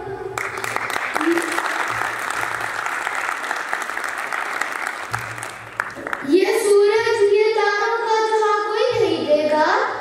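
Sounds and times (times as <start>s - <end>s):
audience applauding: 0.4s - 6.3s.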